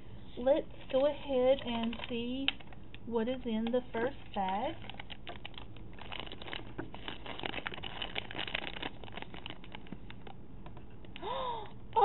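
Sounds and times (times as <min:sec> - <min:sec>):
foil packet crinkling: 0:00.8 - 0:02.8, 0:03.6 - 0:12.0.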